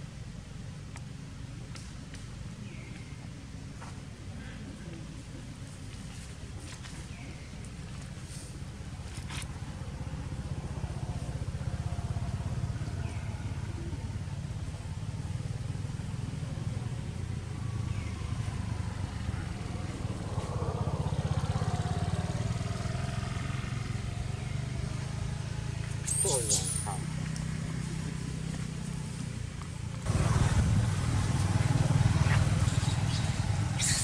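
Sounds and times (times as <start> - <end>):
low motor rumble: 0.0 - 34.0
faint high chirps: 26.0 - 27.0
short wavering call: 26.0 - 27.0.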